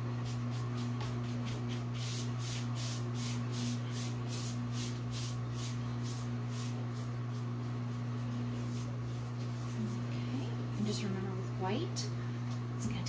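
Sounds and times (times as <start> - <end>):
steady low hum: 0.0 - 13.0
paintbrush swishing on wood: 0.2 - 10.4.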